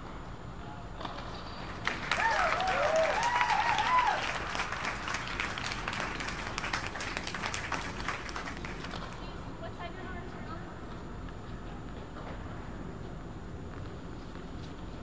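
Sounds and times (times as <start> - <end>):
spectators clapping: 1.6 - 9.3.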